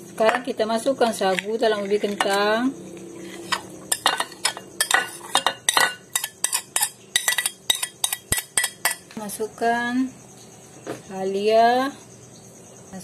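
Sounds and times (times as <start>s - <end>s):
metal spoon clinking on ceramic dishes: 3.4s - 9.1s.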